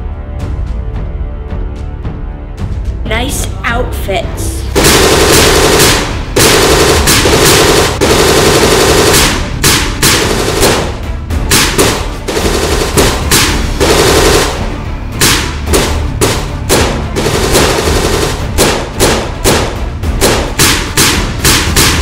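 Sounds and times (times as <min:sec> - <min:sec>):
automatic gunfire bursts: 0:04.8 - 0:22.0.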